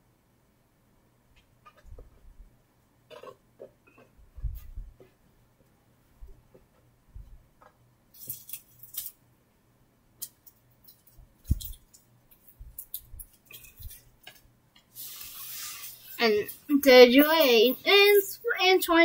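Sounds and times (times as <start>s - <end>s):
plush toys clicking and rustling: 10.2s - 14.4s.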